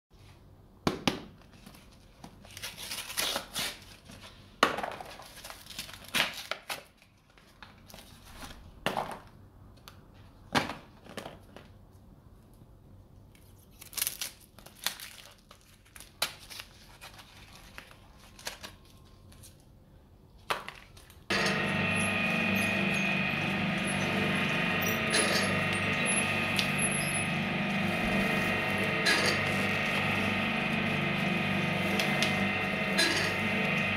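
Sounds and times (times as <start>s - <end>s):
cellophane crinkling and tearing: 1.5s - 4.4s, 5.1s - 8.4s, 13.4s - 19.6s
industrial shredder motor running: 21.3s - 33.9s.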